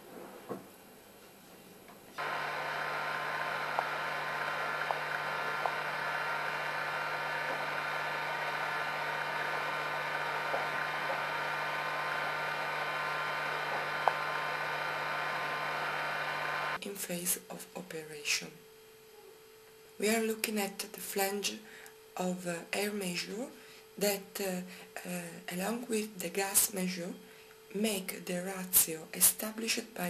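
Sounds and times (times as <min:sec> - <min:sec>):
gas burner hissing: 0:02.2 - 0:16.8.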